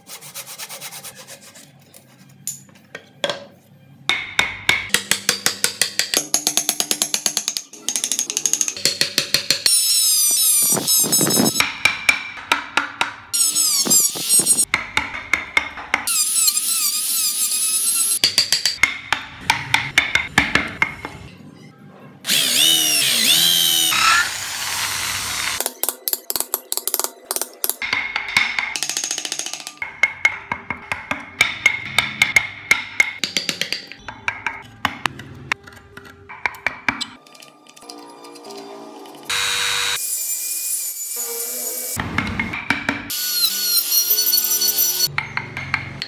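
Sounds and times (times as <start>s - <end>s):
chisel cutting wood: 13.4s - 14.6s, 22.3s - 25.6s.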